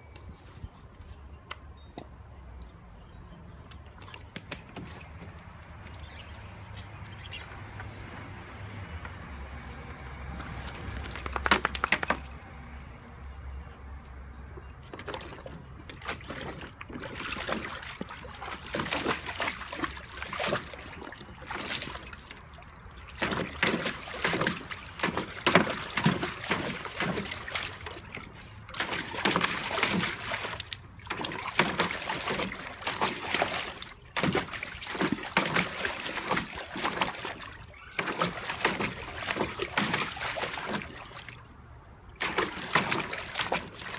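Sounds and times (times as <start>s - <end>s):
dog splashing water: 14.6s - 43.9s.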